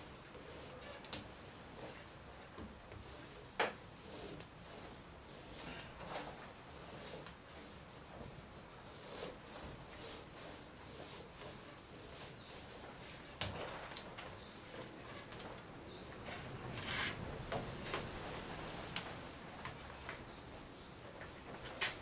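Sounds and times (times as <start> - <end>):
brush rubbing strokes: 0.0 - 17.2.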